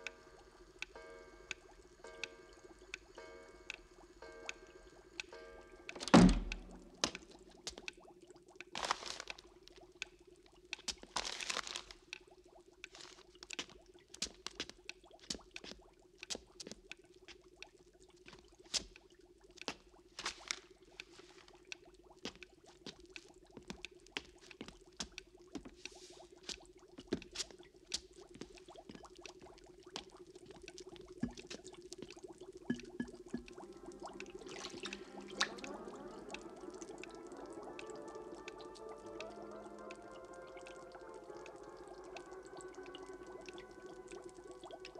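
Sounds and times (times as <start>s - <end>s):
soft held musical tones: 0.0s - 7.6s, 32.7s - 44.9s
sharp drips and ticks: 0.0s - 44.9s
small clicks and taps: 5.9s - 11.1s, 12.8s - 33.6s
newspaper rustling: 8.8s - 9.5s, 11.1s - 12.0s
thin stream pouring into glass: 32.7s - 44.9s.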